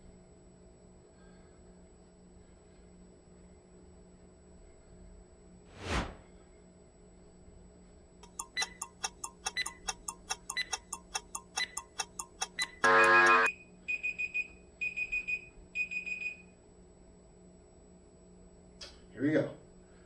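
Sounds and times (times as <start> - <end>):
rapid beeping: 8.2 - 13.5
timer fast ticking: 8.2 - 13.5
loud buzzer: 12.6 - 13.5.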